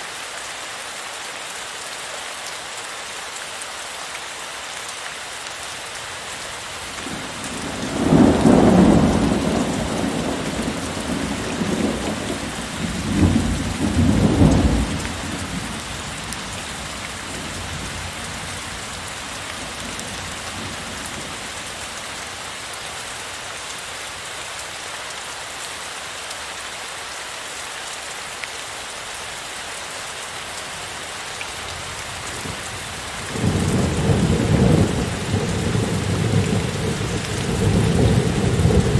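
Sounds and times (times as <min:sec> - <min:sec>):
heavy rain: 0:00.0 - 0:38.9.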